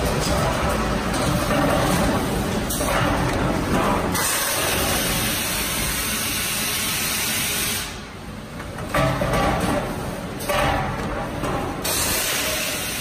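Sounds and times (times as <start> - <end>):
machinery running: 0.0 - 7.7.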